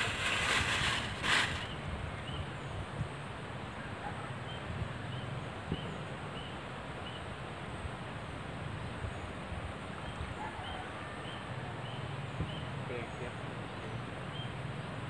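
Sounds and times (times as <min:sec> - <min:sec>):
steady background hiss: 0:00.0 - 0:10.3.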